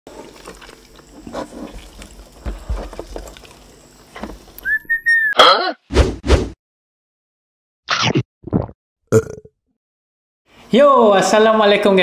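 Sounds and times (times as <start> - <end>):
cartoon whistle: 4.6 - 5.5.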